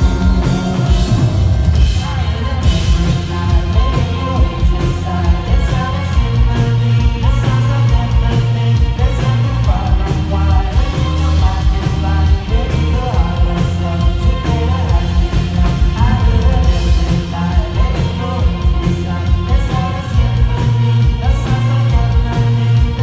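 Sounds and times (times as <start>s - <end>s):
live rock band playing: 0.0s - 23.0s
man singing lead vocal: 0.0s - 23.0s.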